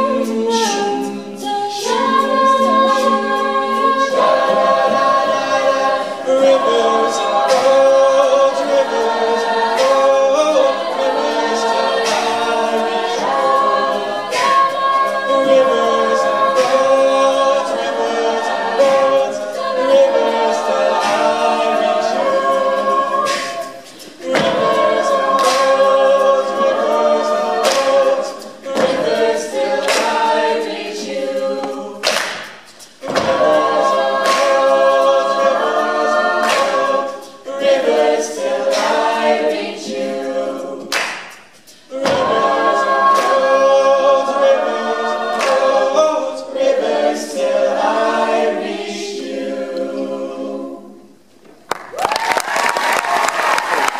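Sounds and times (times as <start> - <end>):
a cappella group singing: 0.0 - 51.4
applause: 51.7 - 53.9.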